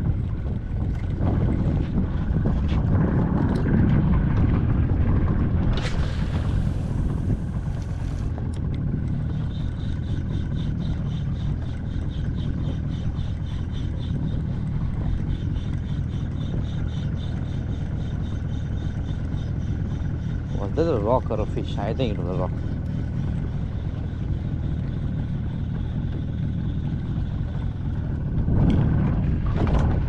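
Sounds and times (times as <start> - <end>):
wind rumbling on microphone: 0.0 - 30.0.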